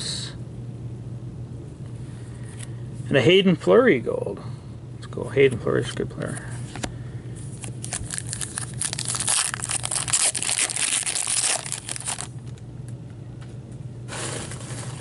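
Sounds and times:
foil wrapper tearing and crinkling: 0:07.6 - 0:12.6.

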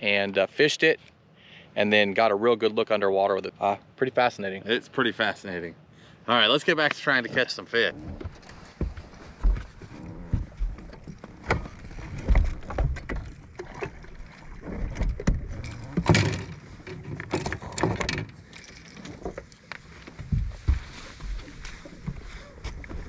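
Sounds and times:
water slapping hull: 0:07.8 - 0:23.0
footsteps and gear knocking on deck: 0:08.0 - 0:13.4, 0:20.1 - 0:23.0.

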